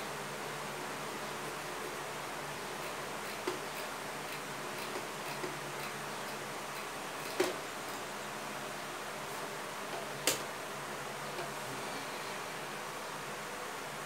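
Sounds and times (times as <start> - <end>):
duster tapping board: 7.2 - 7.6.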